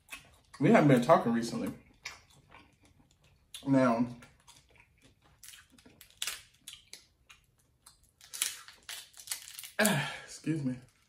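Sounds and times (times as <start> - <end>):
crab shell crackling: 1.9 - 9.9.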